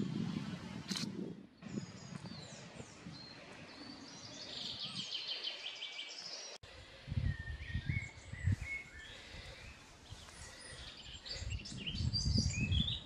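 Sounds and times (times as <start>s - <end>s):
songbird chirping and trilling: 1.6s - 13.0s
faint whistled bird notes: 7.2s - 13.0s.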